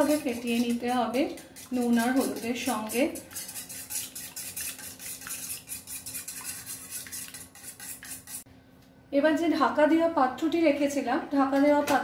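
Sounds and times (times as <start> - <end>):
whisk beating eggs in metal bowl: 0.0 - 8.5.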